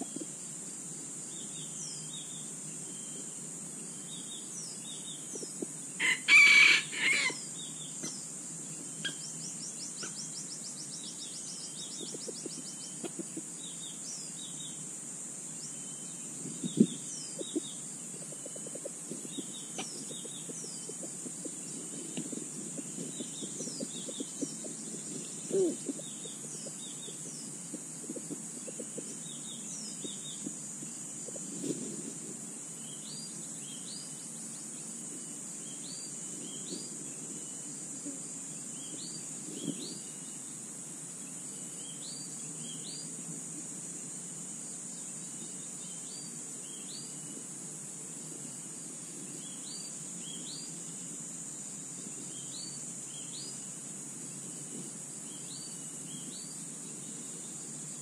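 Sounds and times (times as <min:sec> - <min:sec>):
insect drone: 0:00.0 - 0:58.0
rooster crowing: 0:06.0 - 0:07.4.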